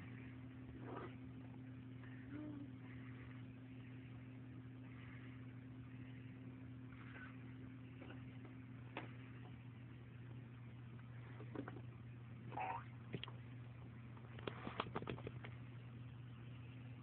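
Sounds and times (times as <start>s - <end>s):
low electrical hum: 0.0s - 17.0s
faint clicks and knocks: 14.1s - 15.6s.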